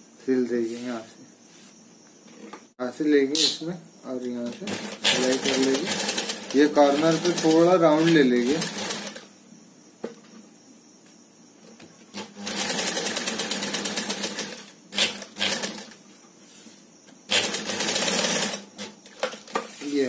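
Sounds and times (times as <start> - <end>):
industrial sewing machine stitching: 4.4 - 9.3, 12.1 - 16.0, 17.3 - 19.5.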